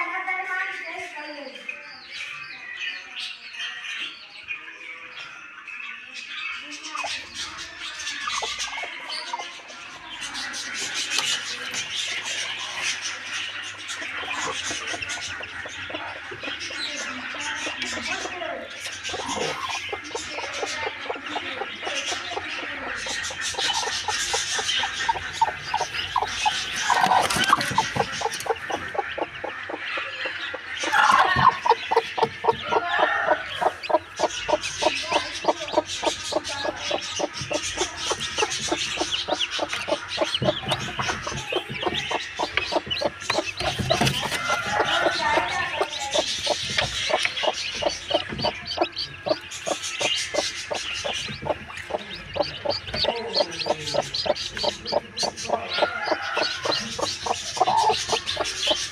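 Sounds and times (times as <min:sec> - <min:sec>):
chicks peeping: 0:00.0 - 0:58.9
chickens clucking: 0:06.6 - 0:58.9.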